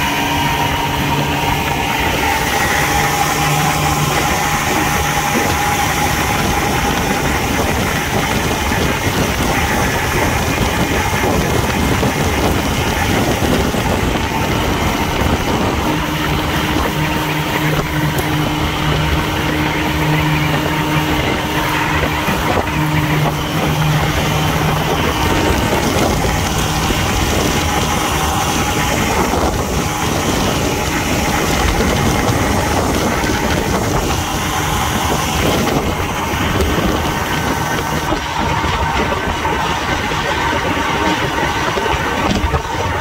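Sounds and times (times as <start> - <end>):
outboard motor running: 0.0 - 43.0
wind and water rushing: 0.0 - 43.0.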